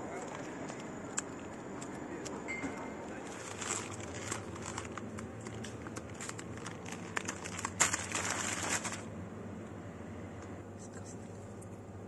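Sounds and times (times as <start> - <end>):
plastic bag crinkling: 3.2 - 9.1.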